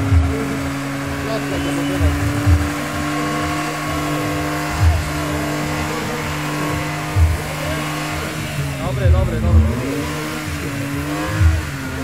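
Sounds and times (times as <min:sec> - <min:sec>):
car engine at high revs: 0:00.0 - 0:12.0
tyres spinning on asphalt: 0:00.0 - 0:12.0.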